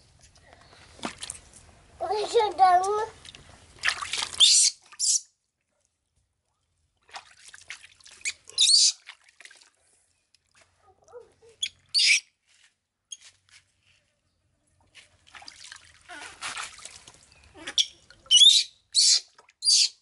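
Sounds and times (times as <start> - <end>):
water splashing in a tub: 3.1 - 5.0, 6.9 - 11.9, 14.9 - 18.4, 19.2 - 19.6.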